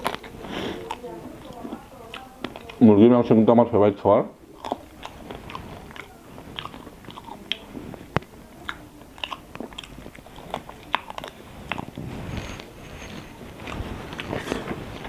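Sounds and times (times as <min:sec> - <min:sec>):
person chewing food: 0:00.0 - 0:03.0, 0:04.4 - 0:15.0
mouth clicks: 0:04.5 - 0:15.0.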